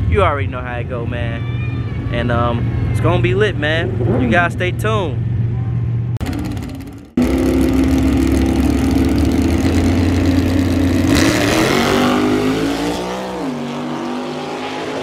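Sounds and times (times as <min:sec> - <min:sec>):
drag race car engines revving: 0:06.2 - 0:15.0.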